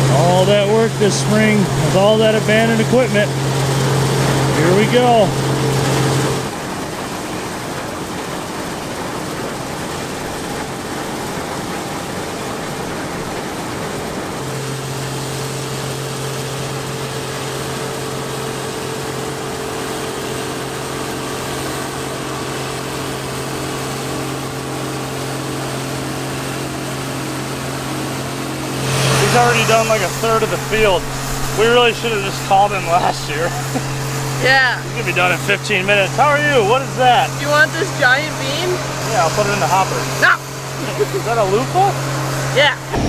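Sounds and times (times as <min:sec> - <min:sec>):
combine harvester running: 0:00.0 - 0:43.0
low hum: 0:29.2 - 0:36.2, 0:42.8 - 0:43.0.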